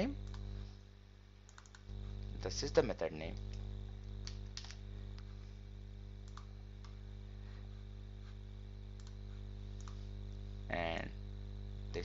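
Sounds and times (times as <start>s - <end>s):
low electrical hum: 0.0s - 12.0s
keyboard clicks: 1.5s - 1.8s, 6.2s - 7.0s, 9.0s - 9.2s
computer mouse clicks: 1.5s - 1.9s, 6.2s - 7.0s, 8.9s - 9.2s, 9.8s - 10.0s.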